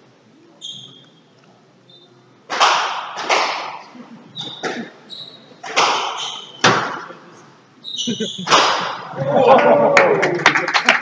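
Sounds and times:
squash ball hits echoing: 0:02.5 - 0:03.9, 0:05.6 - 0:07.1, 0:08.5 - 0:09.1
shoes squeaking on wooden floor: 0:04.3 - 0:06.7.

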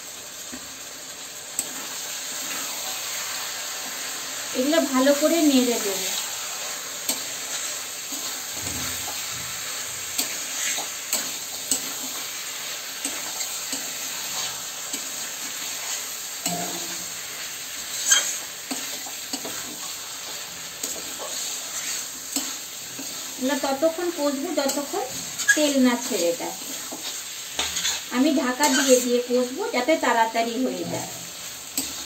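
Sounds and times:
meat sizzling in oil: 0:00.0 - 0:32.0
spatula scraping and clinking pan: 0:16.4 - 0:17.2, 0:17.9 - 0:19.9, 0:24.6 - 0:29.1.

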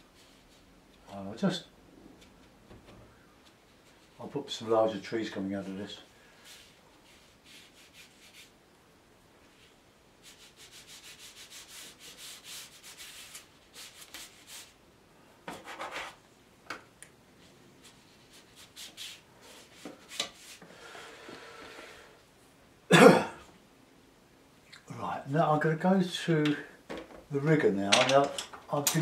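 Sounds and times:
paintbrush scratching on paper: 0:06.4 - 0:08.5, 0:09.5 - 0:14.7.

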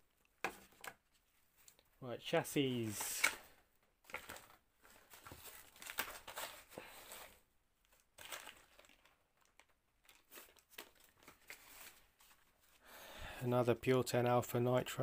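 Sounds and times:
plastic bags and paper rustling: 0:04.1 - 0:12.8.

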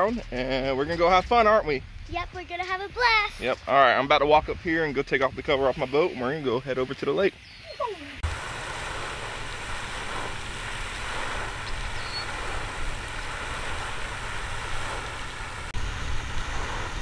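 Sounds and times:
wind buffeting microphone: 0:00.1 - 0:07.0, 0:07.6 - 0:17.0
fountain splashing into water: 0:07.8 - 0:17.0.

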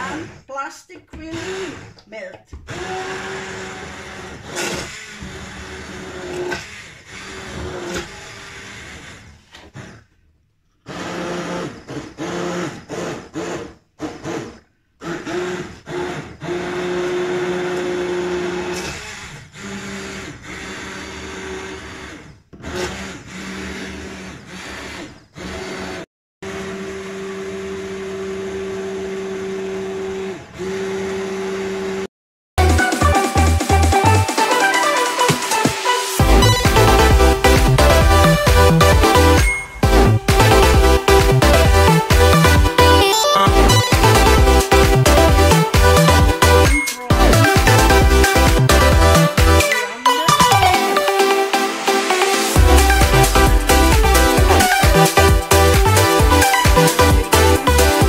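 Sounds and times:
immersion blender motor hum: 0:00.0 - 0:32.1, 0:34.0 - 0:58.0.

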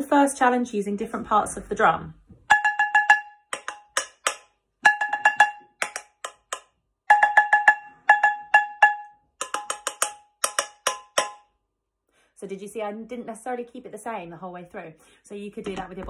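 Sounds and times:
wooden spatula beating metal saucepan: 0:02.5 - 0:11.4.

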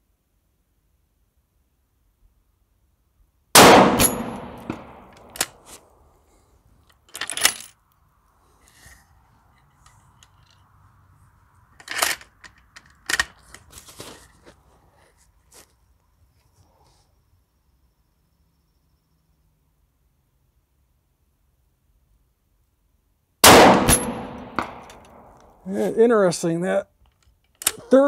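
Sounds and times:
rifle shot with echo: 0:03.6 - 0:05.3, 0:23.4 - 0:25.4.

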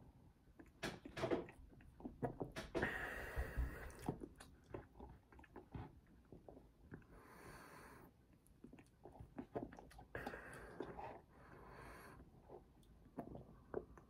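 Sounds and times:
swallowing: 0:01.5 - 0:07.1, 0:08.6 - 0:14.0
lip and tongue clicks: 0:08.4 - 0:11.0.

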